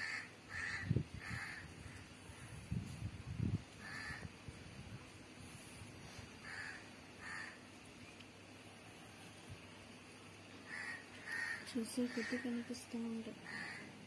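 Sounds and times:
crow cawing: 0:00.0 - 0:02.0, 0:03.8 - 0:04.3, 0:06.4 - 0:07.6, 0:10.7 - 0:12.7, 0:13.4 - 0:14.0.

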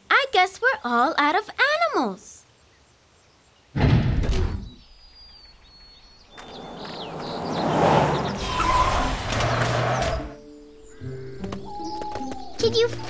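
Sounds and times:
faint birds chirping: 0:00.0 - 0:13.0
jeep engine and tyres: 0:05.4 - 0:10.9.

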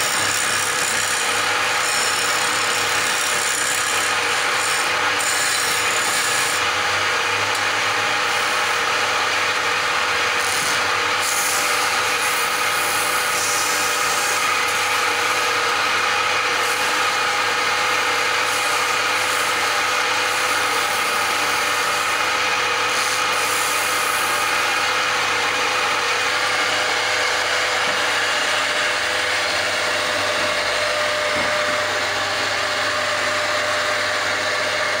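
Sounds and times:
hand tool scraping turning wood: 0:00.0 - 0:06.7, 0:10.2 - 0:15.2, 0:18.3 - 0:35.0
wood lathe motor hum: 0:00.0 - 0:35.0.

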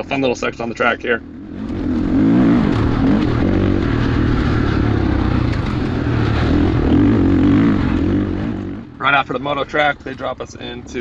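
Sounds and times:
motorcycle engine revving: 0:00.8 - 0:10.1.

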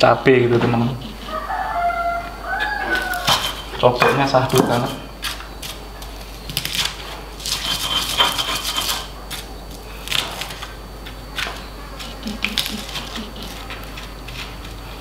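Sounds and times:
stone pestle grinding in mortar: 0:03.0 - 0:05.3, 0:07.4 - 0:09.4.

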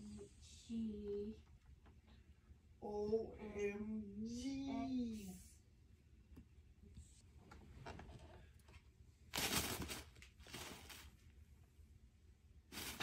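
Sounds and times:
rustling: 0:07.7 - 0:11.4, 0:12.7 - 0:13.0.

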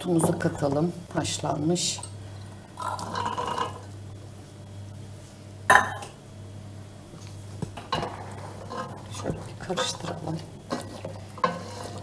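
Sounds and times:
low hum: 0:03.9 - 0:11.5
metal pot clanking: 0:07.8 - 0:12.0.

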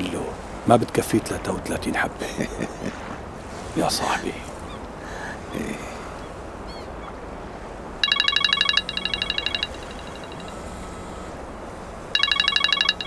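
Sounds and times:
mobile phone ringtone trilling: 0:08.0 - 0:10.8, 0:12.1 - 0:13.0.

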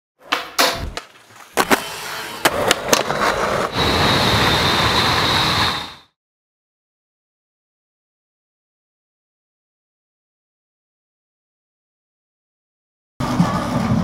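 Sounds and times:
skateboard popping and landing: 0:00.2 - 0:03.8
skateboard scraping with whine: 0:00.2 - 0:06.1.

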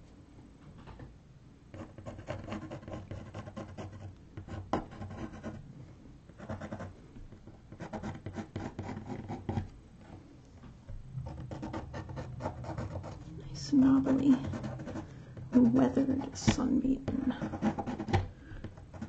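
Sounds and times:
pencil scratching on canvas board: 0:01.7 - 0:05.6, 0:06.3 - 0:09.7, 0:11.2 - 0:19.0.

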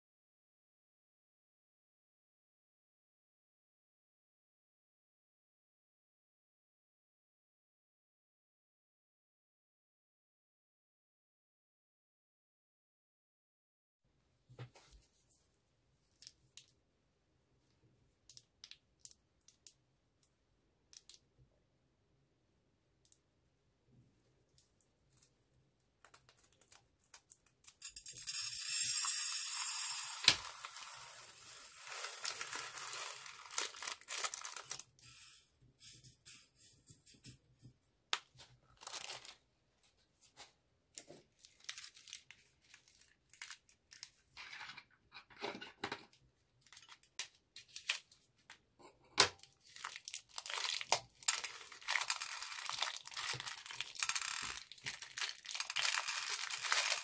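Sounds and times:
plastic beads pouring into glass dish: 0:27.7 - 0:36.5, 0:49.7 - 0:57.0
plastic bags crinkling: 0:30.0 - 0:35.0, 0:38.6 - 0:39.4, 0:41.3 - 0:44.2, 0:49.4 - 0:57.0
beads clicking: 0:49.8 - 0:57.0.

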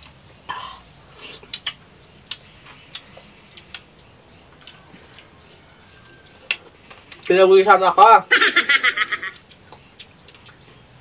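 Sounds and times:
wet mouth clicks and smacks: 0:01.4 - 0:03.9, 0:09.3 - 0:10.7.

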